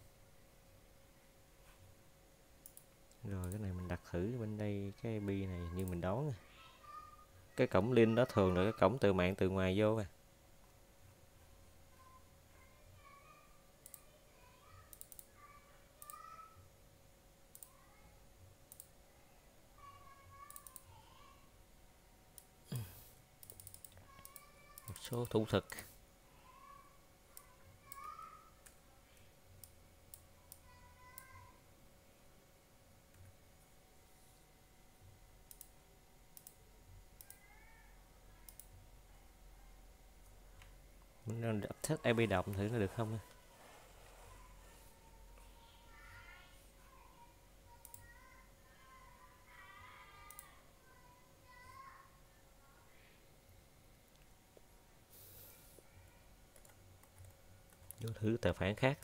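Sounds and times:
computer mouse clicks: 0:02.6 - 0:03.6, 0:13.8 - 0:14.1, 0:14.9 - 0:15.4, 0:16.0 - 0:16.2, 0:17.5 - 0:17.8, 0:18.7 - 0:19.0, 0:20.4 - 0:20.9, 0:23.4 - 0:25.1, 0:27.4 - 0:31.4, 0:35.4 - 0:36.6, 0:37.2 - 0:37.6, 0:38.4 - 0:38.8, 0:47.8 - 0:48.2, 0:50.2 - 0:50.6, 0:56.5 - 0:58.3
faint computer mouse clicks: 0:13.8 - 0:14.1, 0:14.9 - 0:15.3, 0:17.5 - 0:17.8, 0:20.4 - 0:20.9, 0:23.4 - 0:25.1, 0:35.5 - 0:35.8, 0:36.4 - 0:36.6, 0:37.2 - 0:37.5, 0:38.4 - 0:38.8, 0:47.8 - 0:48.2, 0:50.2 - 0:50.5.

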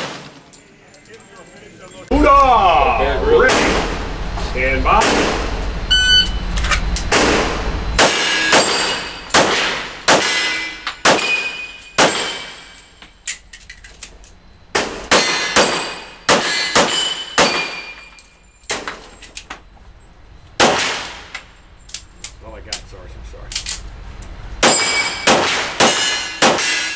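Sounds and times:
handgun shots: 0:07.1 - 0:12.6, 0:14.8 - 0:17.9, 0:24.6 - 0:26.9
steel targets ringing: 0:07.1 - 0:13.0, 0:15.1 - 0:18.9, 0:24.6 - 0:26.9.

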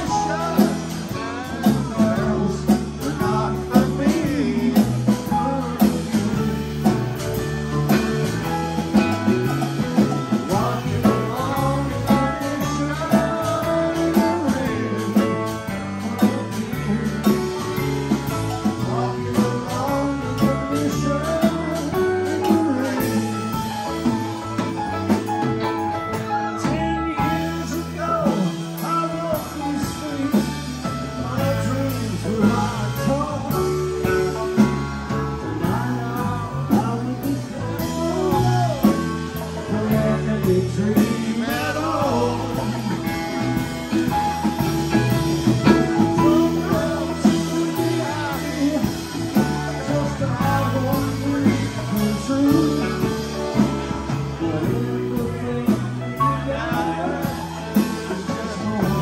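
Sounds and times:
live rock band playing: 0:00.0 - 0:59.0
person singing: 0:00.0 - 0:59.0.

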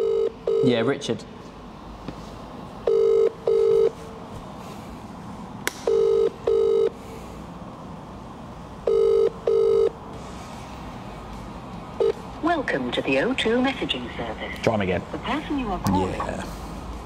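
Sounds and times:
telephone ringback tone: 0:00.0 - 0:00.7, 0:02.8 - 0:03.9, 0:05.9 - 0:07.0, 0:08.8 - 0:10.0.

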